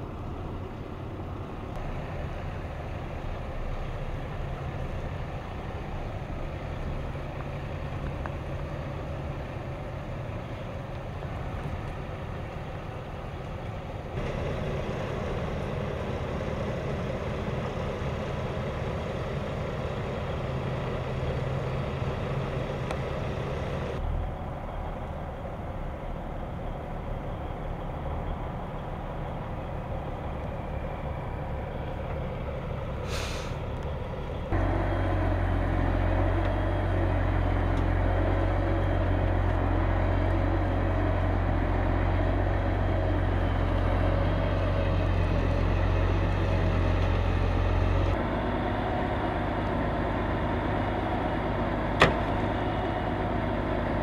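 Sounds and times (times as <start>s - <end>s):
diesel truck engines running: 0.0s - 54.0s
short hiss: 33.0s - 33.6s.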